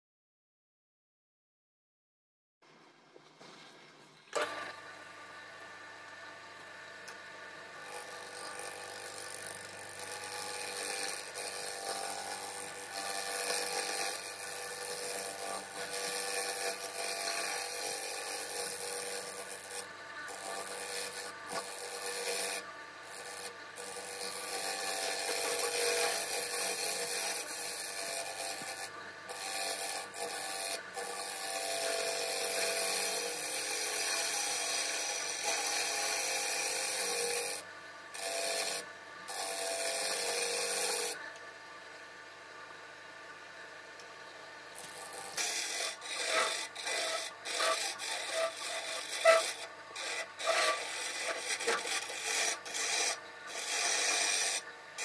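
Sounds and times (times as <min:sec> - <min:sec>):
faint lathe hum: 0:03.9 - 0:55.0
lathe tool scraping wood: 0:07.8 - 0:37.6, 0:38.2 - 0:41.2, 0:44.8 - 0:54.6.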